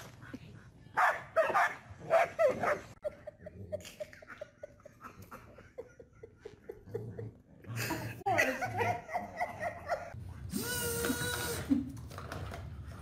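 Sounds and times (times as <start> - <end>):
dogs barking: 1.0 - 3.0.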